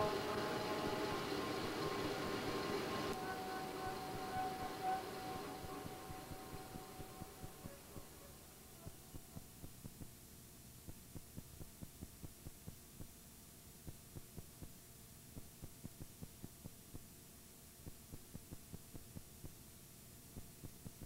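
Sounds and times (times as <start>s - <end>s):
faint electrical hum: 0.0s - 21.0s
soft low ticks: 8.8s - 21.0s.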